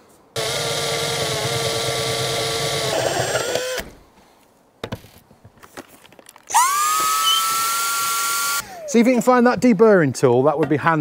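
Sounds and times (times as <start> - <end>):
drill whining through steel: 0.4 - 4.0, 6.5 - 8.6
motor whirring: 0.4 - 4.0, 6.5 - 8.6.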